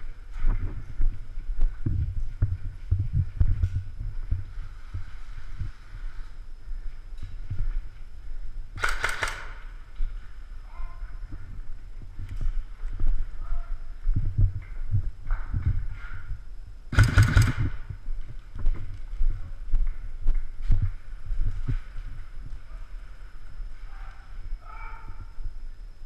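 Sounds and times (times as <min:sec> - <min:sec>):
rapid airsoft rifle shots: 0:08.8 - 0:09.7, 0:16.9 - 0:17.9.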